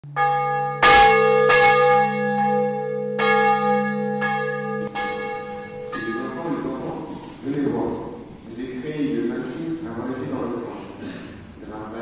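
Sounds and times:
bells ringing: 0:00.2 - 0:07.7.

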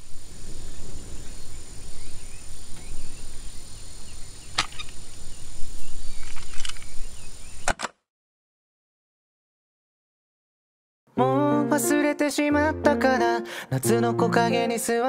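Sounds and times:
low wind rumble: 0:00.0 - 0:07.6
faint bird chirps: 0:00.0 - 0:07.7
sharp clicks: 0:07.6 - 0:08.0.

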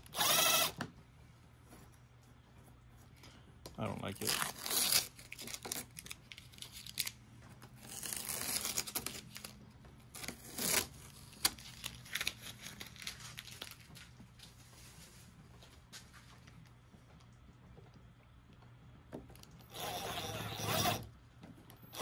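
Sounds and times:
tape crumpled in hand: 0:03.8 - 0:14.8
masking tape ripping off: 0:04.1 - 0:07.2, 0:07.8 - 0:14.0.

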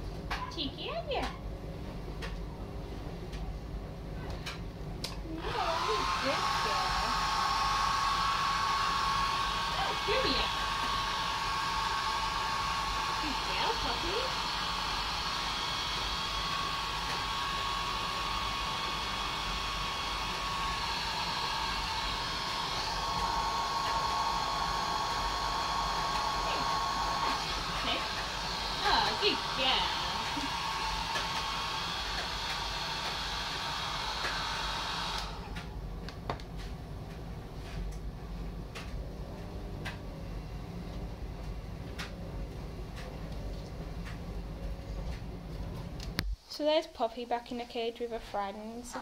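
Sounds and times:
hair dryer running: 0:05.1 - 0:36.8.

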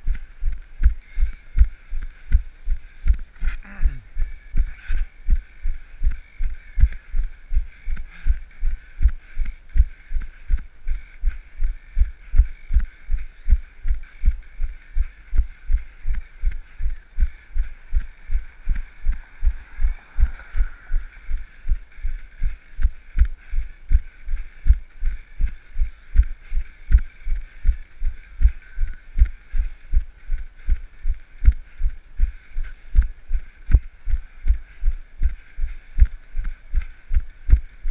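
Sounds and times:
steady hiss: 0:04.4 - 0:37.9
car passing: 0:17.7 - 0:22.0.

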